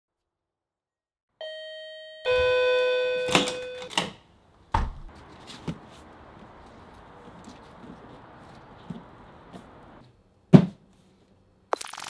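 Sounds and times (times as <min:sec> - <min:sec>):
two-note doorbell chime: 0:01.4 - 0:03.9.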